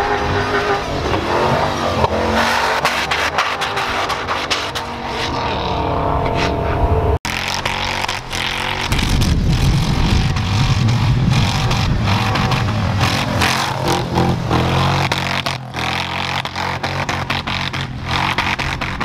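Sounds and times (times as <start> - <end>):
tires churning through snow: 0.0 - 19.0
engine revving hard: 7.2 - 19.0.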